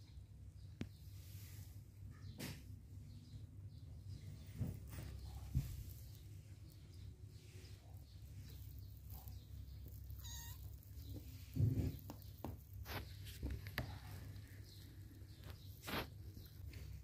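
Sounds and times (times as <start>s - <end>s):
kitten mewing: 10.1s - 10.9s.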